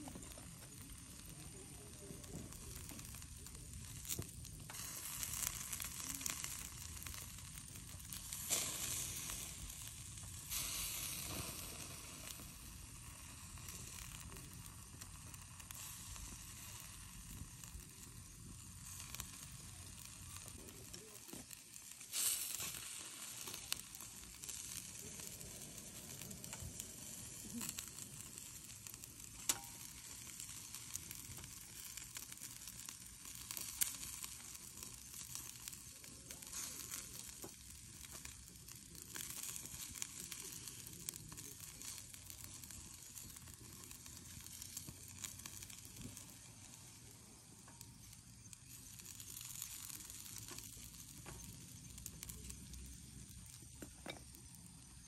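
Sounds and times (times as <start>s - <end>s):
meat sizzling on grill: 0.0s - 55.0s
chopsticks clicking on grate: 29.4s - 29.8s.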